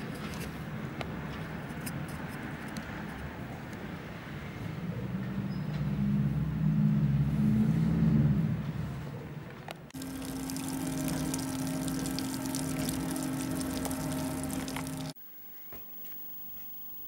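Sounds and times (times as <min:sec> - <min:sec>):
washer fluid spurting and splashing: 0:10.0 - 0:15.2
steady hum: 0:10.0 - 0:17.0.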